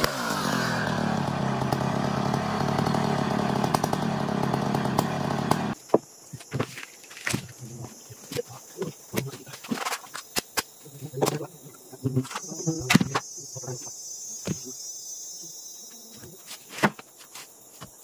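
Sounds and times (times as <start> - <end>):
insects chirring: 5.7 - 18.0.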